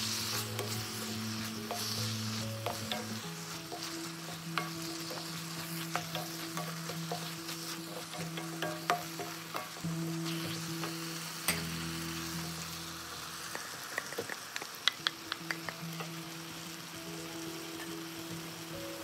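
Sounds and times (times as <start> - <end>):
vegetables sizzling in a wok: 0.0 - 19.0
spatula tapping on pan: 1.6 - 2.0, 2.6 - 9.8, 13.9 - 15.8.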